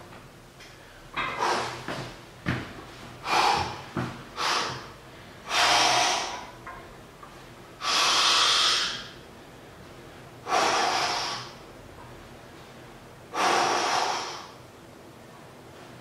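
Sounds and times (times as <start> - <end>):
man breathing hard: 0.7 - 1.9, 3.2 - 6.5, 7.8 - 9.2, 10.4 - 11.6, 13.3 - 14.6.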